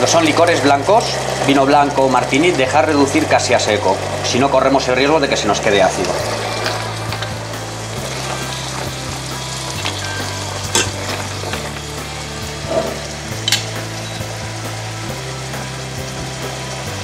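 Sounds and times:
vegetables sizzling in a saucepan: 0.0 - 17.0
low hum: 5.9 - 17.0.

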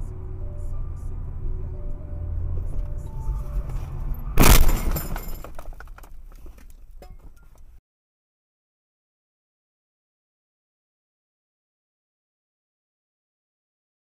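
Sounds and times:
car road rumble: 0.0 - 7.8
loud car crash: 3.7 - 6.2
breaking and shattering crackle: 4.4 - 6.2.

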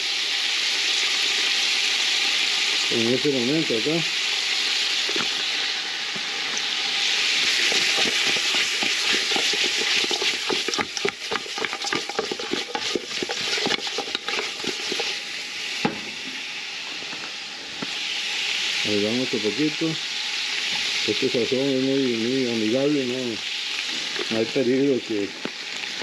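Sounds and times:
meat sizzling in oil: 0.0 - 26.0
meat clattering in shaken pot: 7.3 - 15.2.

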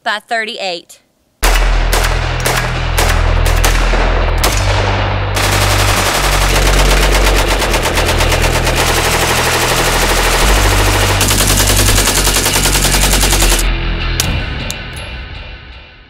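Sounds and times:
rapid rifle gunfire: 1.4 - 13.7.

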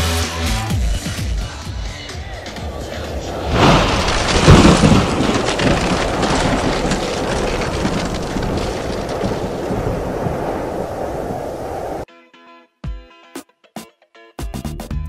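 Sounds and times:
noisy rush with crackling: 1.4 - 12.1
heavy hit: 1.6 - 11.5.

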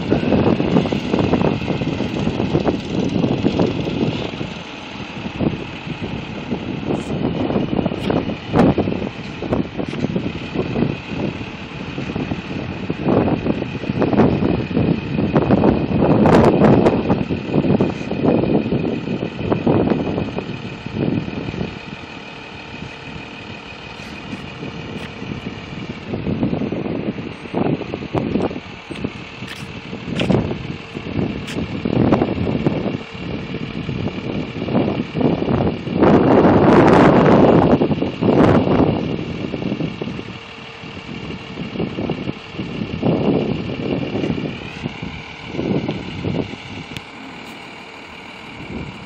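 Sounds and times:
diesel truck engine running: 0.0 - 49.0
wind buffeting microphone: 0.0 - 49.0.

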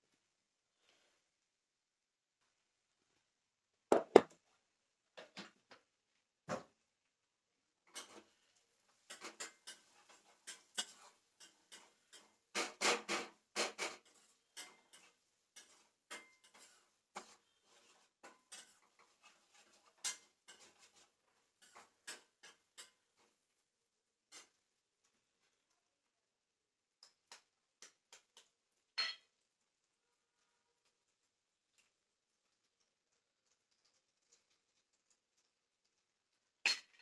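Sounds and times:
utensils and dishes clicking: 9.1 - 16.8.

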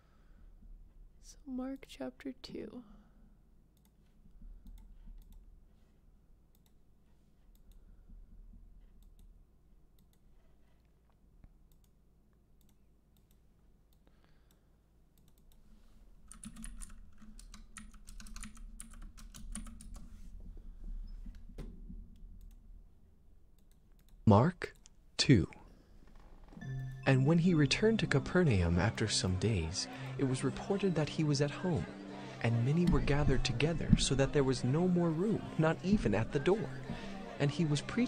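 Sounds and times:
typing on computer keyboard: 16.3 - 20.1.

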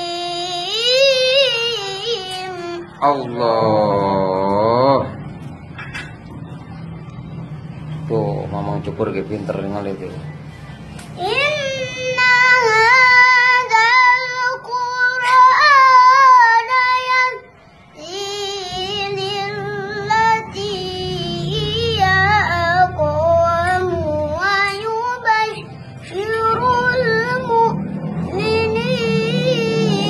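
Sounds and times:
boy chanting recitation: 0.0 - 5.2, 11.1 - 17.4, 18.0 - 30.0.

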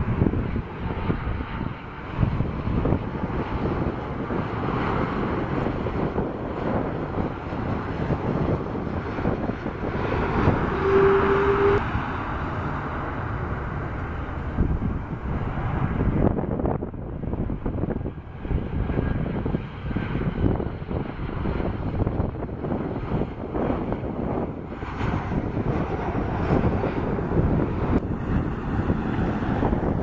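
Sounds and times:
jet engines rushing: 0.0 - 30.0
brief steady tone: 10.0 - 11.8.

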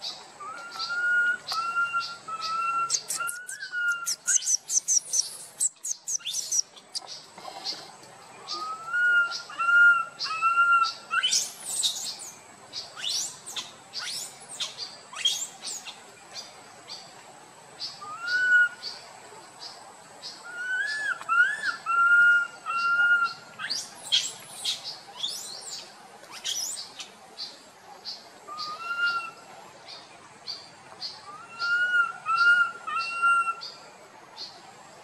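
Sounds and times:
birds chirping: 0.0 - 17.1, 17.8 - 35.0
monkey coo calls: 0.4 - 7.1, 8.4 - 12.1, 18.0 - 18.8, 20.4 - 25.5, 28.5 - 29.4, 31.2 - 33.8.

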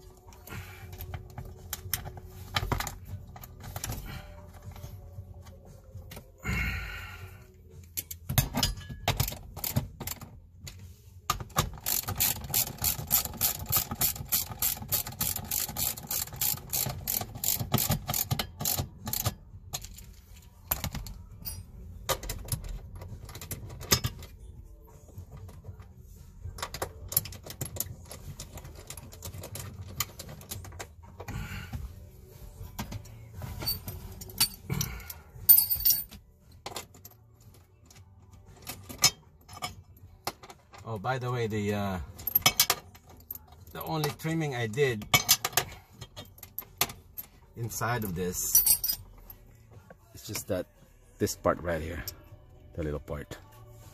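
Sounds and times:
socket ratchet clicking: 11.6 - 19.4.

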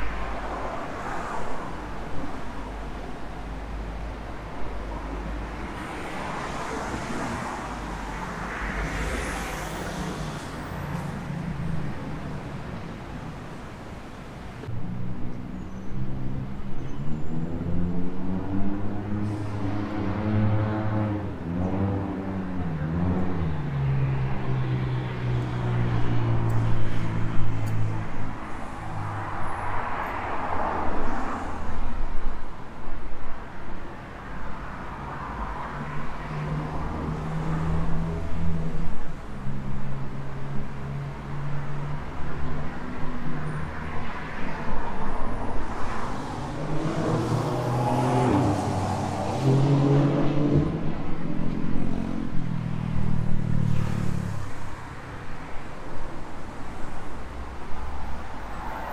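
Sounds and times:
vehicle passing by: 17.3 - 26.4, 45.4 - 55.2.

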